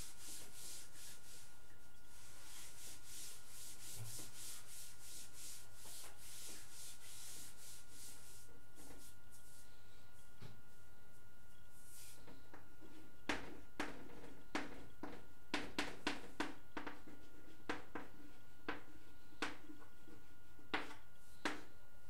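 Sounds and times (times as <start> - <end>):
chalk tapping on blackboard: 2.5 - 8.1, 13.3 - 21.7.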